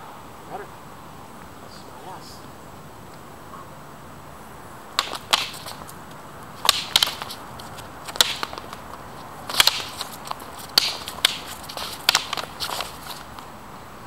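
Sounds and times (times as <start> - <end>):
wooden swords clacking together: 5.0 - 5.9, 6.6 - 13.4.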